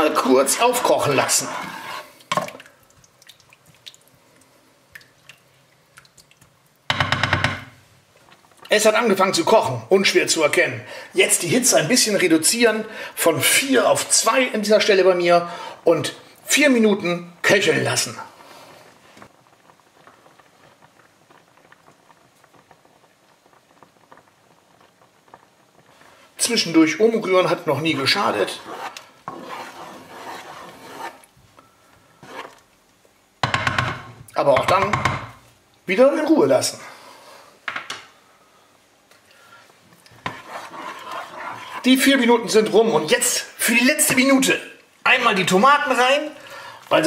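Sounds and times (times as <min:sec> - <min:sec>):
cream sauce bubbling in a pan: 0:00.0 - 0:10.2, 0:12.9 - 0:35.3, 0:38.4 - 0:47.0
spatula stirring sauce: 0:00.1 - 0:04.2, 0:25.8 - 0:31.3, 0:32.2 - 0:32.7, 0:39.9 - 0:42.7
sauce bubbles popping: 0:02.1 - 0:08.7, 0:19.2 - 0:31.4
soft hiss: 0:07.6 - 0:47.0.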